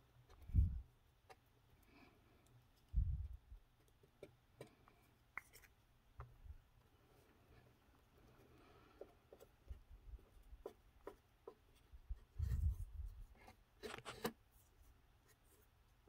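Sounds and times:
wooden stick tapping and scraping: 0:02.7 - 0:06.9, 0:07.6 - 0:14.4.

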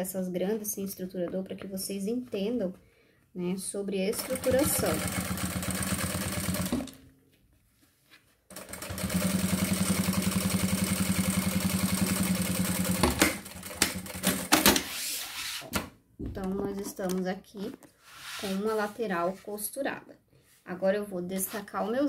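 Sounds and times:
sewing machine stitching: 0:04.1 - 0:07.0, 0:08.5 - 0:14.7.

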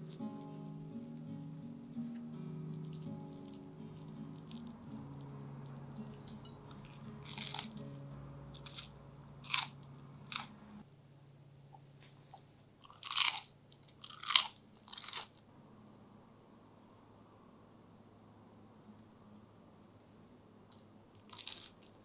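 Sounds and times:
toast crunching as torn apart: 0:07.2 - 0:07.8, 0:12.9 - 0:15.3.

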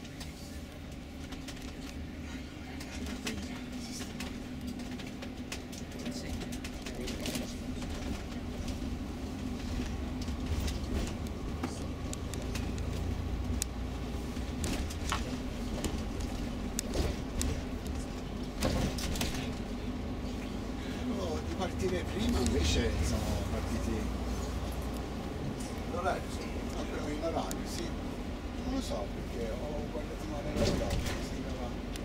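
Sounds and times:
light clicks and rattles: 0:00.0 - 0:09.0
bus engine drone and road rumble: 0:00.0 - 0:32.0.

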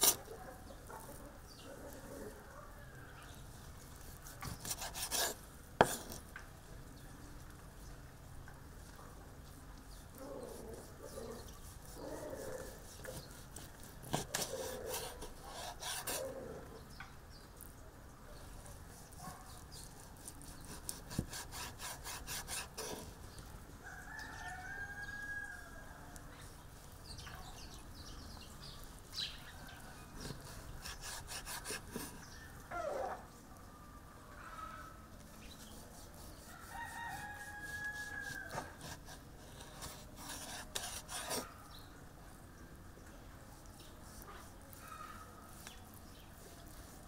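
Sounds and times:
knife sawing through meat: 0:00.0 - 0:00.2, 0:04.0 - 0:06.2, 0:10.6 - 0:16.4, 0:18.9 - 0:23.2, 0:30.2 - 0:32.2, 0:35.6 - 0:41.5, 0:44.0 - 0:44.8, 0:45.5 - 0:45.8, 0:46.4 - 0:47.0.

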